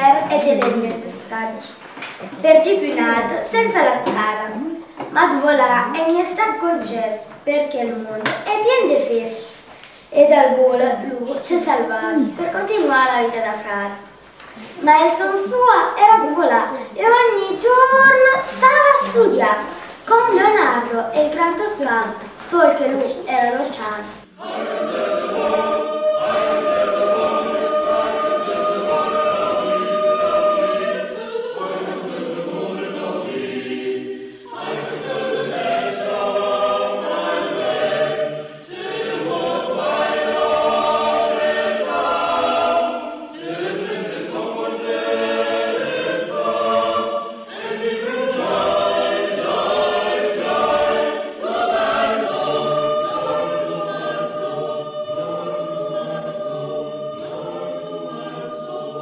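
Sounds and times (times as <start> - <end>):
choir singing held chords: 24.0 - 59.0.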